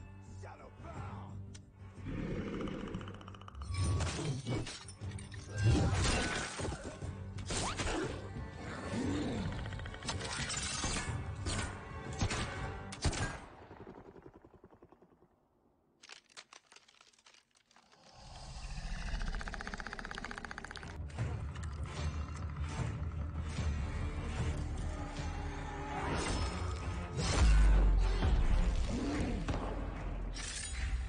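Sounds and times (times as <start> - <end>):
dramatic orchestral score: 3.8 - 13.9, 20.5 - 31.0.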